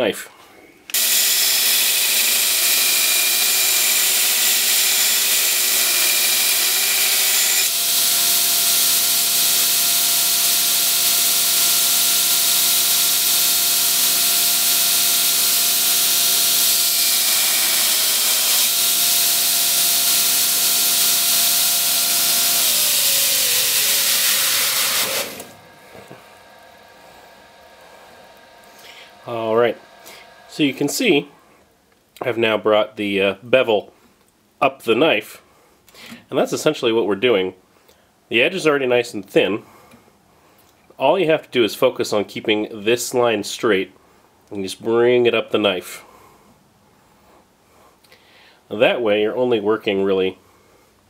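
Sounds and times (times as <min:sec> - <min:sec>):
belt grinder grinding steel: 0:00.9 - 0:25.8
motor humming: 0:00.9 - 0:30.6.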